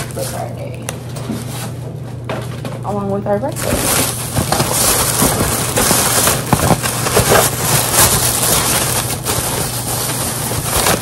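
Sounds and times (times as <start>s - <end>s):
plastic packaging crinkling: 0.0s - 1.7s, 3.0s - 11.0s.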